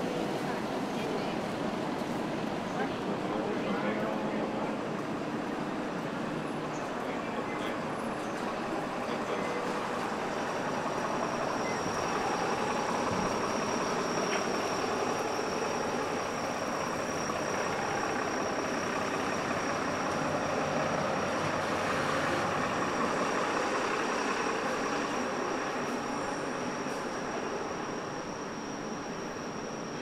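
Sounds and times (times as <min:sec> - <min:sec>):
motor traffic: 0:15.9 - 0:26.2.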